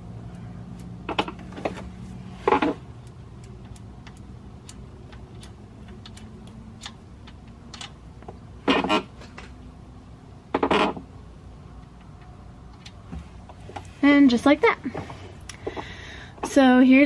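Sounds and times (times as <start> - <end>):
metal plug clicking and ticking: 0.3 - 1.5, 3.0 - 8.0.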